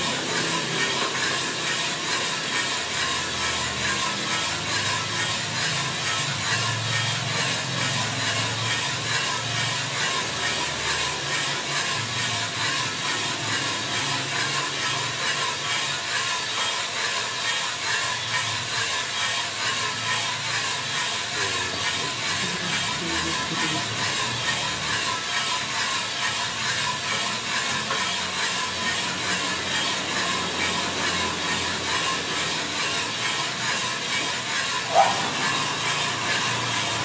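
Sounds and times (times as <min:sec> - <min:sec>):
coffee beans rattling in drum: 0:00.0 - 0:37.0
roaster hiss: 0:00.0 - 0:37.0.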